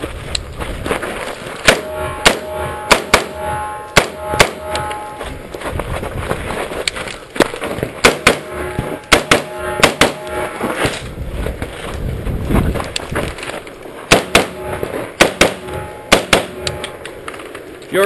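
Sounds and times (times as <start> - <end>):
rifle shots: 1.6 - 4.8, 8.0 - 10.5, 14.1 - 16.9.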